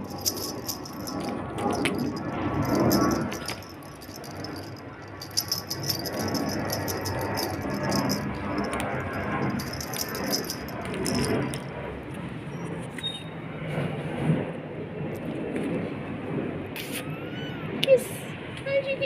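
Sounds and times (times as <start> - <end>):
beaded toy rattling and jingling: 0.0 - 11.9.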